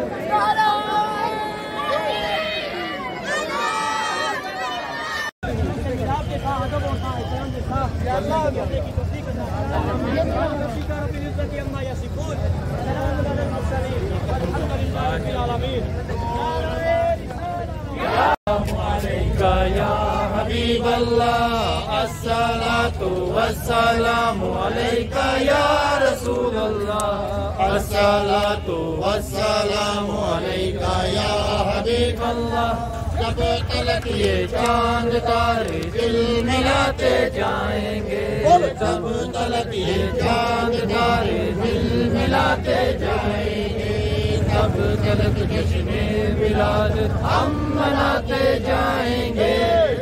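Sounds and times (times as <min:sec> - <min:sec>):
voices chanting: 0:12.2 - 0:50.0.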